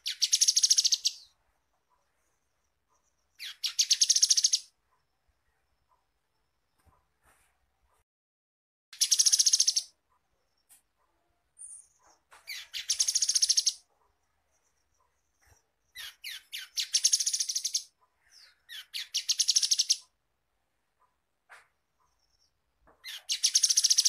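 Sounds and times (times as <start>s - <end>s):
bird trilling: 0.0s - 1.3s, 3.4s - 4.7s, 12.5s - 13.8s, 16.0s - 20.0s, 23.0s - 24.0s.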